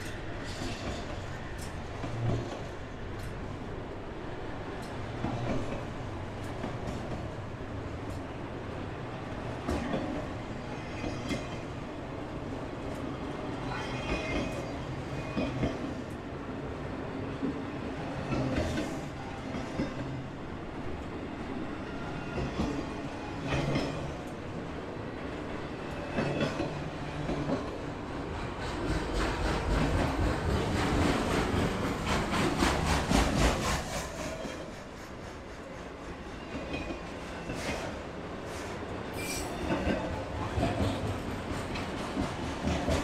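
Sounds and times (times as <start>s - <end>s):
freight train wheels clacking: 25.4s - 43.0s.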